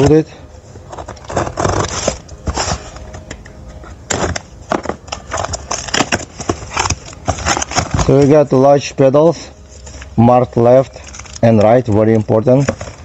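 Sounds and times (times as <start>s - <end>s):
utility knife slitting packing tape: 1.1s - 2.9s, 5.2s - 8.2s.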